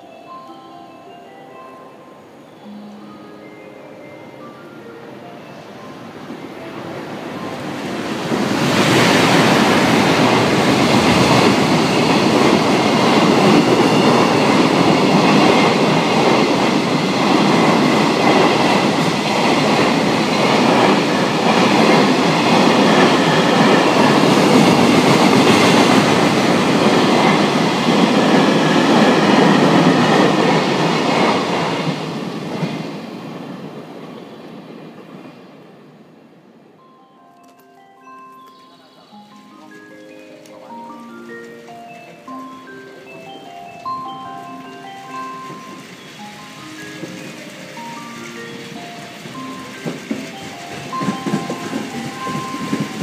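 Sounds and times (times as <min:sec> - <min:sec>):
freight train passing: 0:00.0 - 0:53.0
wagon wheels clattering over rails: 0:37.4 - 0:53.0.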